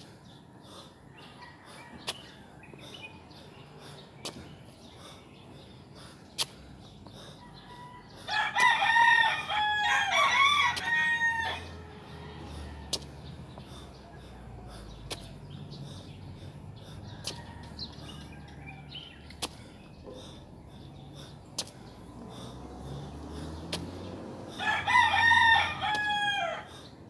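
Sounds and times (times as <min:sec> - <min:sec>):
rooster crowing: 0:07.4 - 0:13.0, 0:24.6 - 0:26.7.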